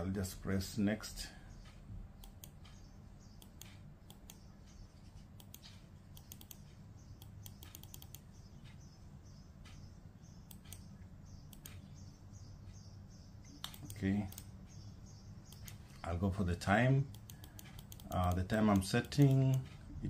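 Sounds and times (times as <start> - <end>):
faint low hum: 0.0 - 20.0
computer mouse clicking: 1.6 - 12.0, 13.4 - 14.8, 15.5 - 16.1, 17.1 - 19.8.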